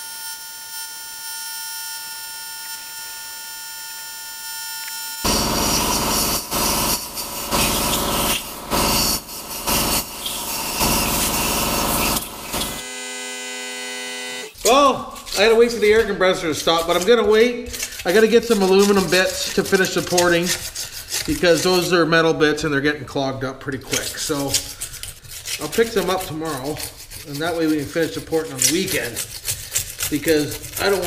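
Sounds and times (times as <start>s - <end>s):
air die grinder whining: 4.8s - 17.0s
air compressor humming: 5.2s - 14.9s
compressed air blow gun hissing: 5.3s - 12.8s.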